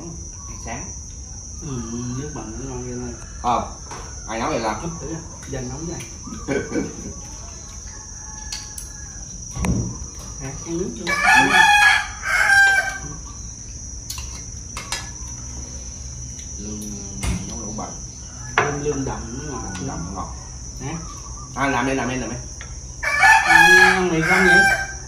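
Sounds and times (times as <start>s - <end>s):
insects chirring: 0.0s - 25.0s
rooster crowing: 1.7s - 5.1s, 6.2s - 10.0s, 11.0s - 13.6s, 18.0s - 21.6s, 22.9s - 25.0s.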